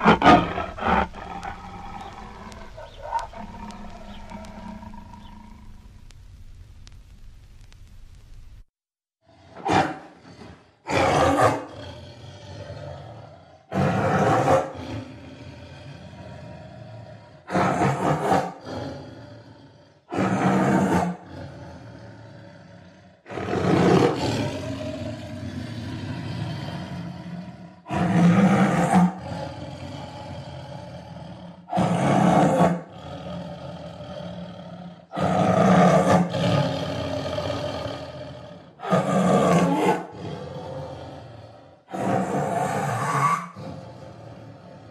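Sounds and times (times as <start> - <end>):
tigers roaring: 0.0 - 6.0, 9.3 - 44.9.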